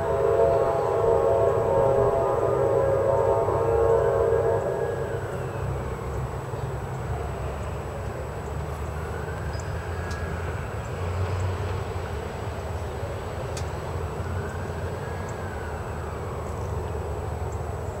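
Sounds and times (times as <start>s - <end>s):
locomotive chime air horn: 0.0s - 6.7s
low rumble of train: 0.0s - 18.0s.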